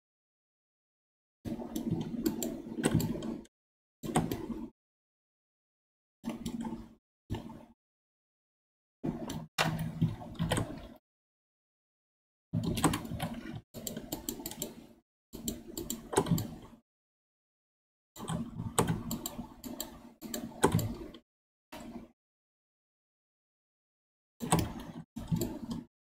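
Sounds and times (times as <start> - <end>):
computer keyboard clicking: 12.6 - 14.8, 15.4 - 16.7, 18.2 - 21.2.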